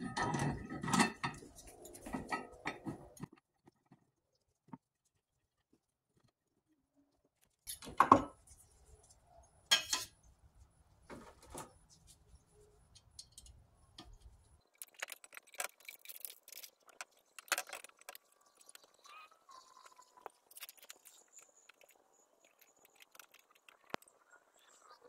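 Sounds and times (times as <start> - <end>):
glassware clinking and rattling: 0.0 - 3.0, 9.7 - 10.2
clinks and knocks: 0.0 - 3.3.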